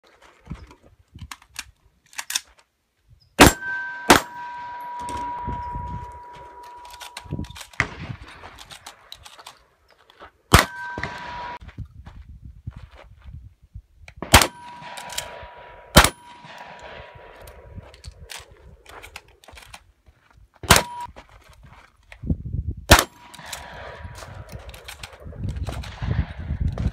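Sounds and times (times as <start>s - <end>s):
shells clicking into magazine: 1.2s - 2.6s, 6.6s - 7.8s, 8.5s - 9.7s
steel target ringing: 3.4s - 7.5s, 10.5s - 11.6s
shotgun shots: 3.4s - 9.1s, 10.5s - 11.6s, 14.2s - 17.7s, 20.6s - 21.1s, 22.9s - 26.9s.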